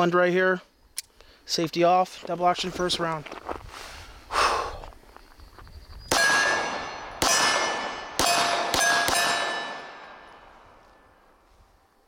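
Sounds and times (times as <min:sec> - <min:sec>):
pistol shots: 0:06.1 - 0:10.5.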